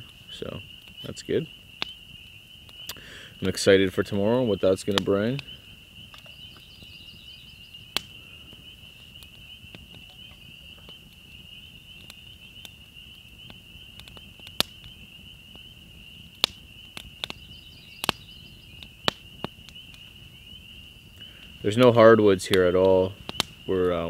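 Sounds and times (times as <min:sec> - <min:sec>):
campfire crackling: 0:00.0 - 0:24.0
frogs calling in chorus: 0:00.0 - 0:24.0.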